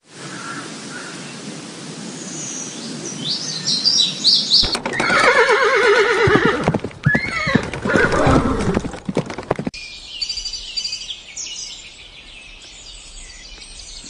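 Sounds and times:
horse whinnying: 4.6 - 9.0.

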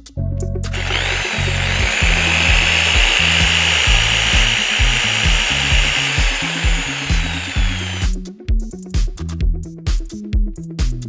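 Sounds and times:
electric drill motor whining: 0.7 - 8.2.

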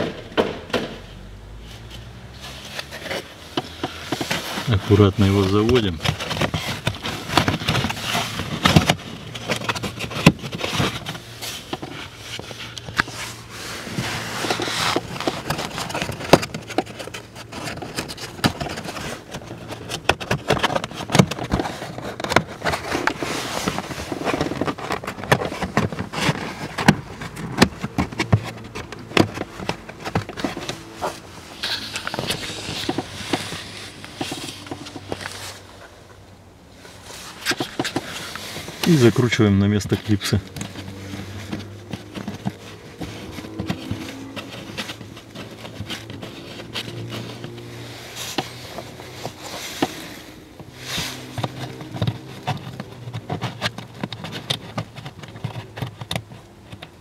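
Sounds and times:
plastic trim panel scraping and clicking: 37.4 - 57.0.

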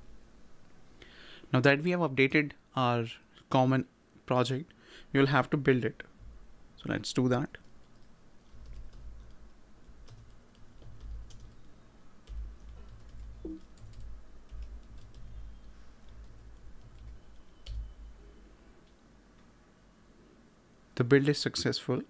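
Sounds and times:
keyboard typing: 7.3 - 18.2.

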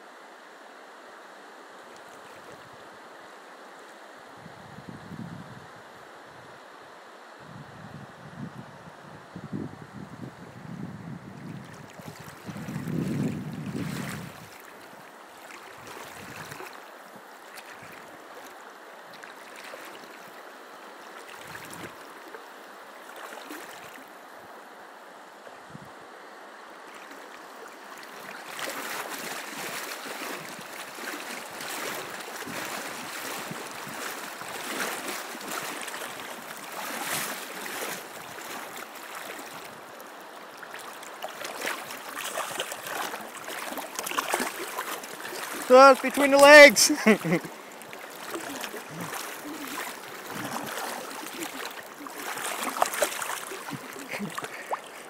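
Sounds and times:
river water rippling over stones: 0.0 - 4.4, 11.4 - 25.6, 26.3 - 55.0.

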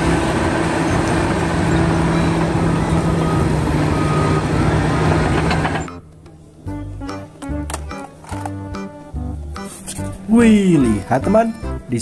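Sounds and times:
heavy machine noise: 0.0 - 6.0
bulldozer diesel engine droning: 0.0 - 7.1.

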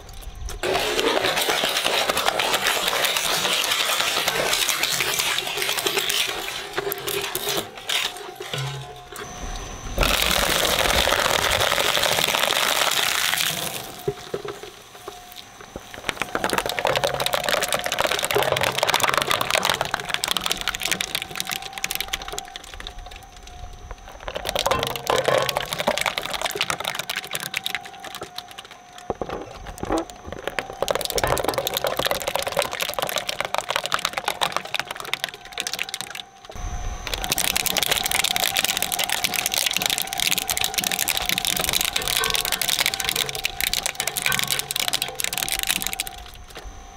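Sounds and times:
shredder crunching plastic: 0.0 - 9.3, 10.0 - 14.8, 15.8 - 23.2, 23.8 - 36.4, 37.0 - 46.6
motor hum: 0.0 - 35.6.

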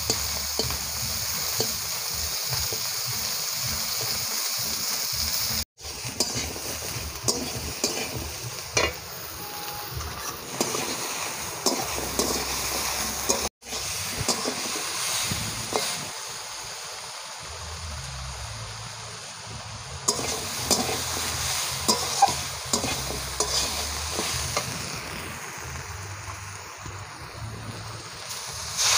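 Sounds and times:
vegetables sizzling in hot oil: 0.0 - 28.9
metal spatula scraping a pan: 5.8 - 16.0, 20.1 - 24.7.

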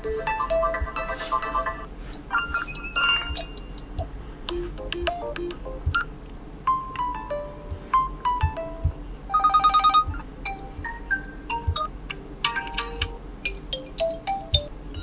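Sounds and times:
phone ringtone melodies: 0.0 - 3.8, 4.5 - 6.0, 6.7 - 15.0
fast repeated beeps: 2.3 - 6.1
finger tapping on screen: 2.5 - 6.0.

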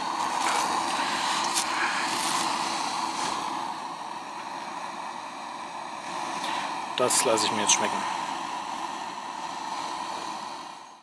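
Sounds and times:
camping stove burner hissing: 0.0 - 11.0.

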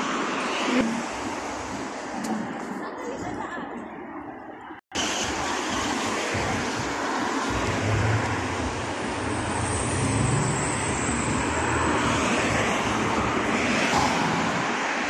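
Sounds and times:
cars passing: 5.0 - 15.0.

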